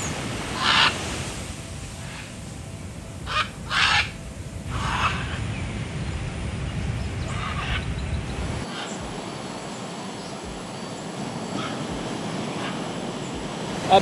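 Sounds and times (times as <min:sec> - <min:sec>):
macaws squawking: 0:00.6 - 0:01.0, 0:03.3 - 0:05.4, 0:08.6 - 0:14.0.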